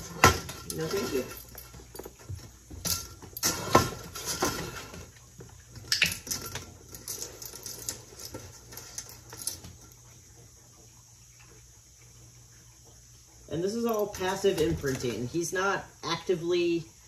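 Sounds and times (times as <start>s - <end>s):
dog eating from metal bowl: 0.0s - 10.7s.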